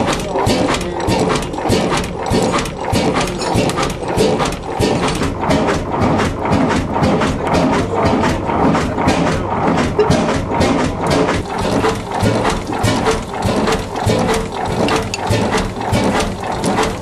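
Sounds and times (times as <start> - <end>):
stationary engine running: 0.0 - 17.0
valve gear clattering: 0.0 - 17.0.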